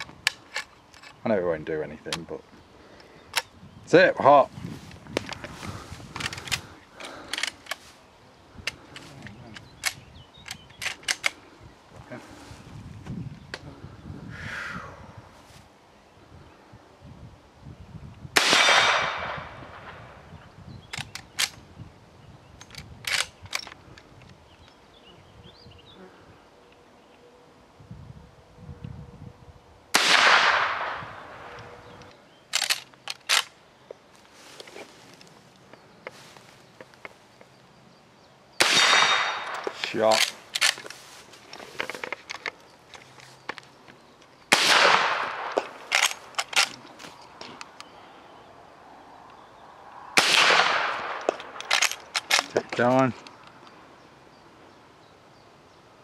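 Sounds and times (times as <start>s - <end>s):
metallic rifle action clicks: 0.0s - 1.2s, 6.1s - 7.9s, 8.6s - 11.4s, 20.9s - 21.6s, 22.6s - 24.4s, 31.5s - 33.6s, 38.8s - 47.0s, 50.3s - 53.7s
rifle shot with echo: 18.4s - 20.1s, 29.9s - 31.6s, 38.6s - 40.2s, 44.5s - 45.7s, 50.1s - 51.8s.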